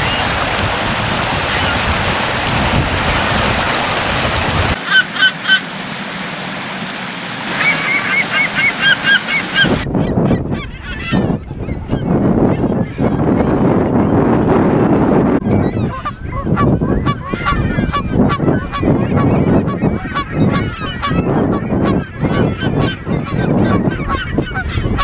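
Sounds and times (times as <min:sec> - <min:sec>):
gusty rumbling noise: 0:00.0 - 0:04.8, 0:05.7 - 0:25.0
water rushing over rocks: 0:00.0 - 0:09.9
gulls calling: 0:00.0 - 0:14.2, 0:15.4 - 0:25.0.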